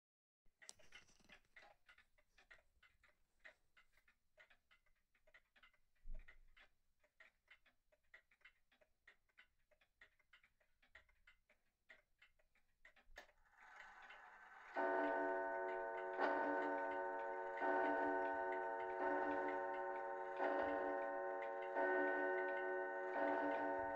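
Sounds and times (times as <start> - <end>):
wall clock ticking: 0.6 - 23.9
clock mechanism whirring: 9.3 - 23.9
loud clock click: 12.8 - 23.9.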